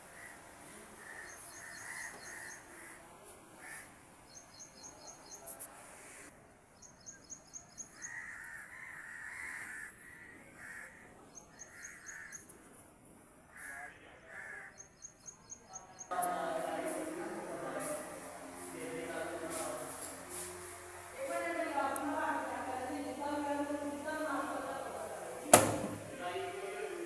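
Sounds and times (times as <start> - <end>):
crows cawing: 0.1 - 0.4, 1.0 - 3.0, 3.6 - 3.9, 8.0 - 11.0, 11.7 - 12.5, 13.5 - 14.8.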